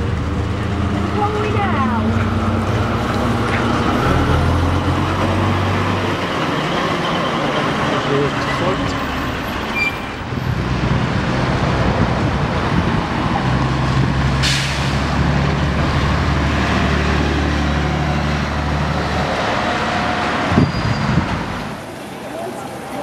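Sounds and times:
diesel bus engine: 0.0s - 23.0s
air brakes hiss: 14.4s - 15.0s.

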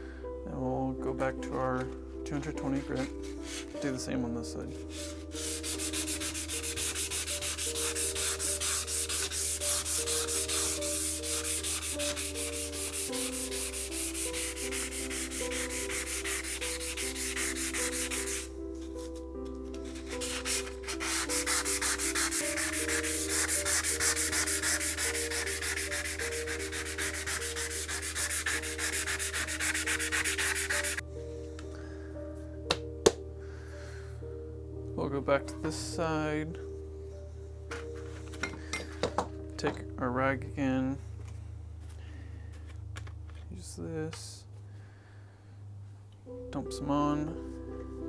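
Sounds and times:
sandpaper rasping on saw blade: 4.9s - 18.5s, 20.0s - 31.0s.

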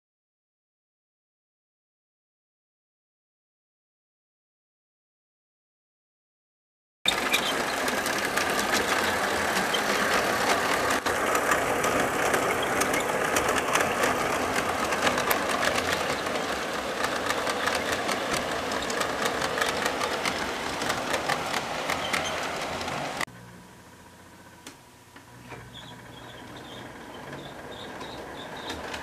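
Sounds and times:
model train whirring: 7.1s - 23.3s, 25.5s - 29.0s
wheels clicking on rail: 7.1s - 23.3s, 25.5s - 29.0s.

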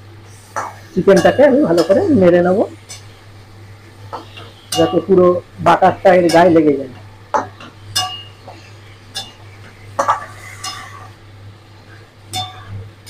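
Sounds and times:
metal spatula scraping a metal pan: 10.0s - 11.2s.

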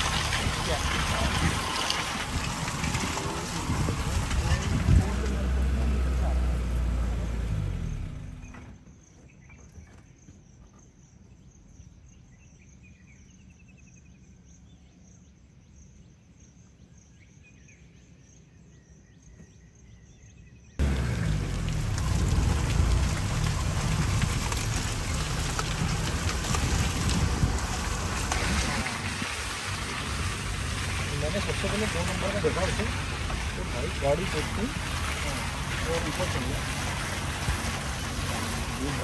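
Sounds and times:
jeep engine running: 0.0s - 9.5s, 20.8s - 39.0s.

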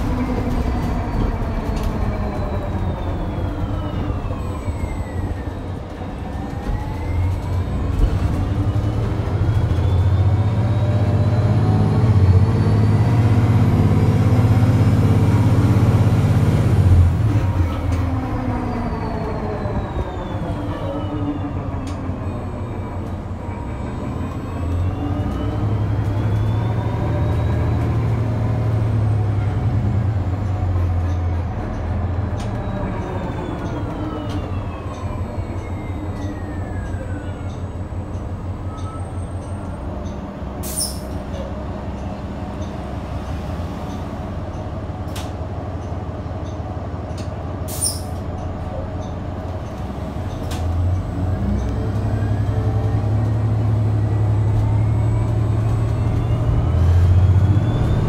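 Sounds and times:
bus drivetrain hum and rumble: 0.0s - 58.0s.

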